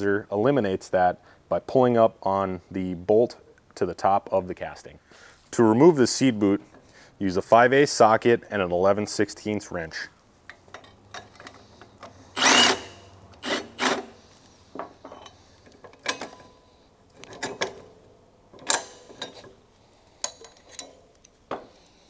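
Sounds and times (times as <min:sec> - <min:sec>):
cordless impact wrench bursts: 0:12.2 - 0:14.3
metal clanks and knocks: 0:17.2 - 0:19.6.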